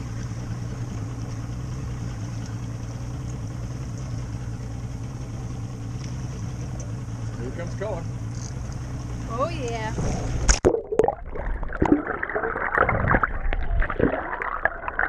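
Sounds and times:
outboard motor idling: 0.0s - 10.6s.

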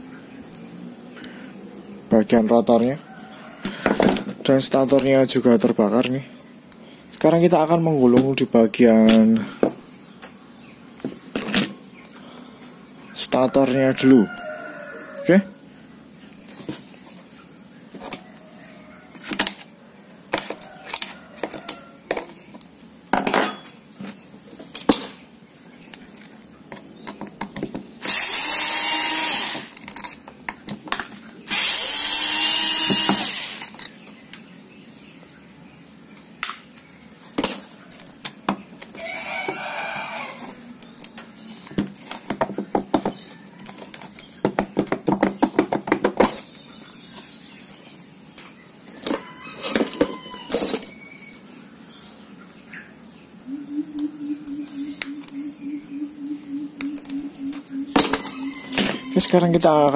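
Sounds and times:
loud steady bursts: 28.0s - 29.7s, 31.5s - 33.7s.

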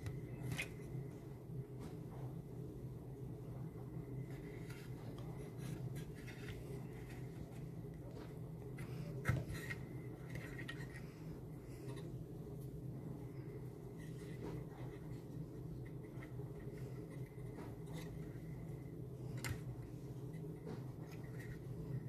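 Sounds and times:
steady low hum: 0.0s - 22.0s
wire rustling and scraping: 13.3s - 22.0s.

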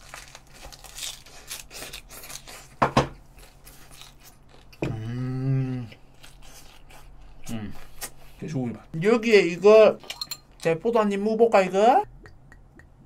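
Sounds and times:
person chewing crunchy food: 0.0s - 8.4s
closed-mouth hum: 12.0s - 13.0s.

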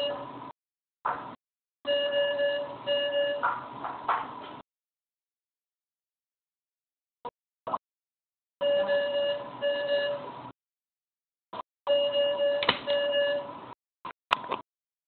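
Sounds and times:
medical alarm beeping: 0.0s - 0.3s, 1.9s - 3.6s, 8.6s - 10.3s, 11.9s - 13.6s.

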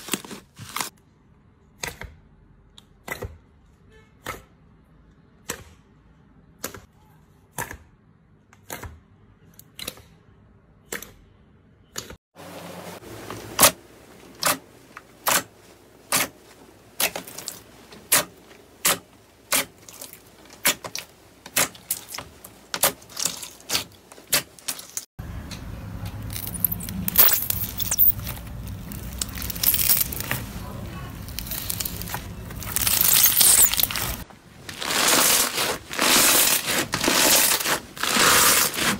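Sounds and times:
slime crunching crackle: 19.5s - 25.0s, 26.3s - 38.9s.

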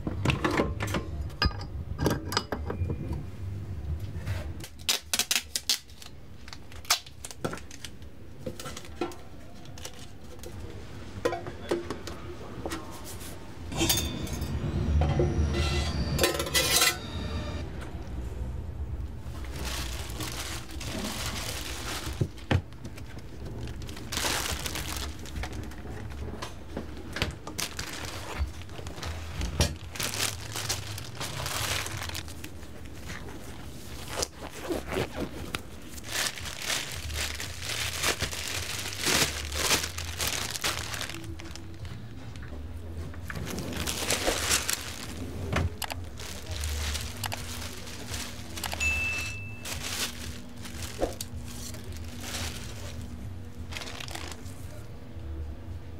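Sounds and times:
utensils clinking and knocking: 13.7s - 17.1s
rustling and scraping: 19.2s - 54.9s.

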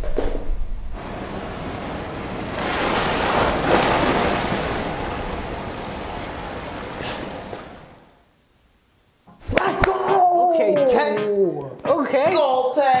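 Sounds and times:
ocean surf on beach: 0.9s - 8.2s.

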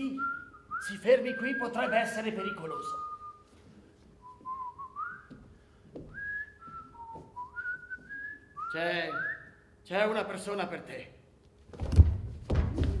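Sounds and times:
person whistling a tune: 0.0s - 3.6s, 4.2s - 5.4s, 6.1s - 9.6s.

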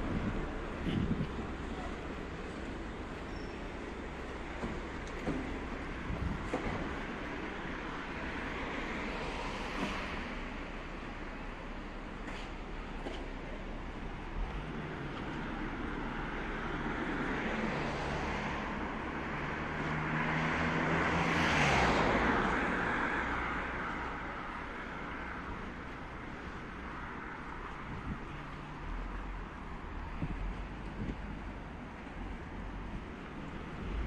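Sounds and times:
traffic hum: 0.0s - 34.0s
vehicle passing by: 16.0s - 23.8s.

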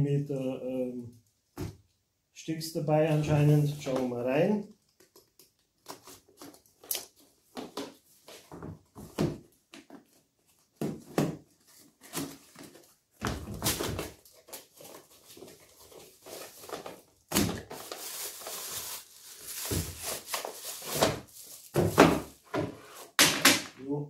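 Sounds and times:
plastic packaging crinkling: 13.5s - 21.8s.

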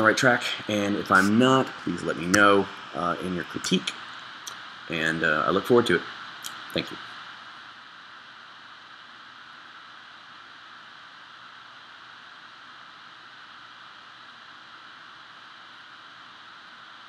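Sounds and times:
room tone hiss: 0.0s - 17.0s.

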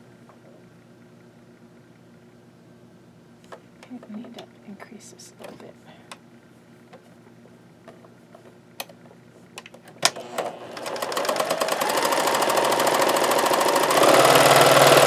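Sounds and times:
electric sewing machine stitching: 10.0s - 15.0s.

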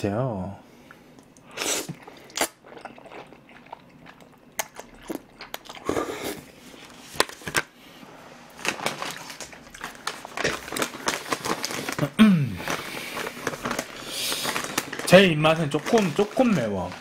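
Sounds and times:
wet chewing smacks: 0.9s - 6.1s
person slurping noodles: 1.5s - 3.8s, 4.8s - 6.5s.

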